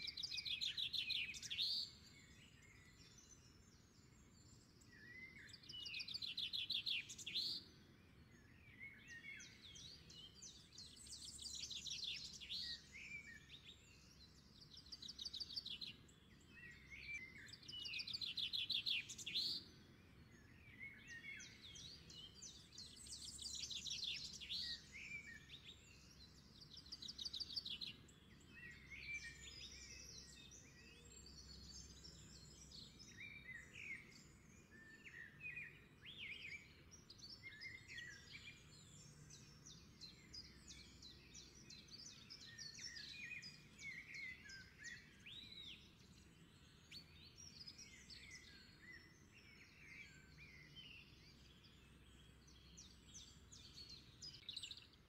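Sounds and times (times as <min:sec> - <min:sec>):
faint birdsong chirps and trills: 0:00.0 - 0:55.0.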